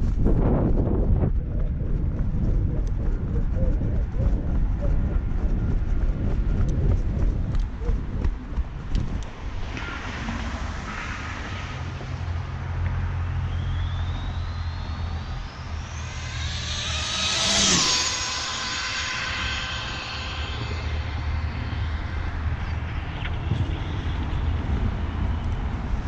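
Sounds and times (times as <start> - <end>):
rc truck electric motor whine: 13.1 - 22.9.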